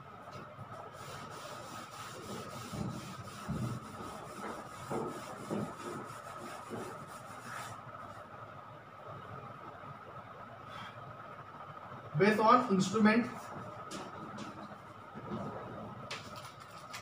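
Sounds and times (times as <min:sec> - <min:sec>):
duster rubbing chalkboard: 0:00.9 - 0:07.8.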